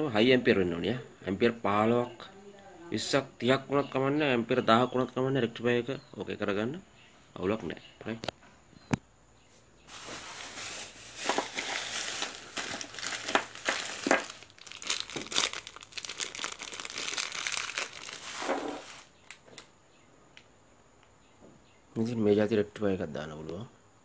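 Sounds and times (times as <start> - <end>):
plastic bag crinkling: 9.9 - 19.7.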